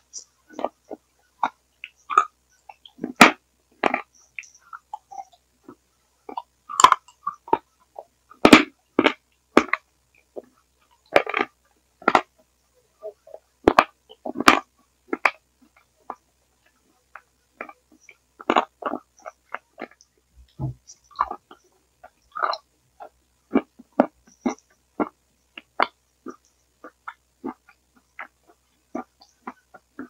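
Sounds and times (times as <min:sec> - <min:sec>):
chewing and smacking mouth noises: 0:13.7 - 0:30.0.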